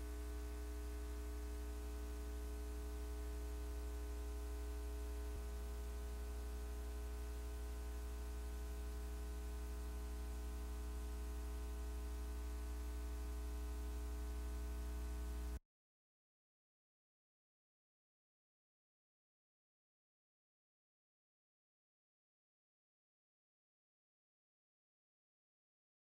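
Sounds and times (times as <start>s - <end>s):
electrical mains hum: 0.0s - 15.6s.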